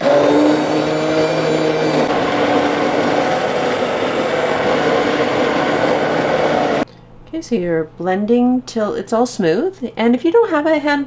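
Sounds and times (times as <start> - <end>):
hand blender motor whirring: 0.0 - 6.8.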